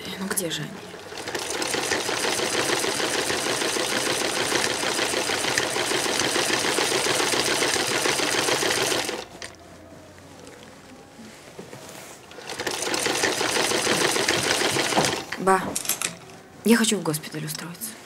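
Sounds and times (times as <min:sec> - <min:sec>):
sewing machine clattering: 0:01.0 - 0:09.6, 0:12.3 - 0:16.1.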